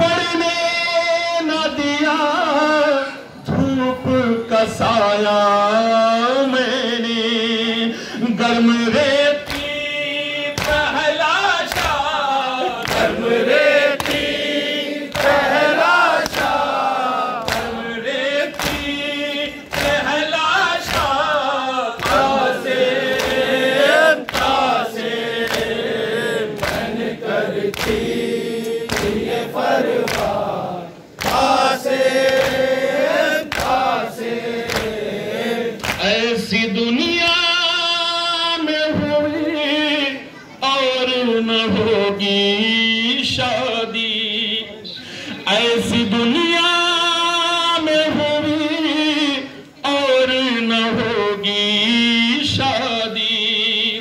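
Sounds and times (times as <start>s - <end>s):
man chanting over microphone: 0.0s - 54.0s
rhythmic chest-beating: 8.9s - 36.5s
crowd chanting: 9.5s - 36.5s.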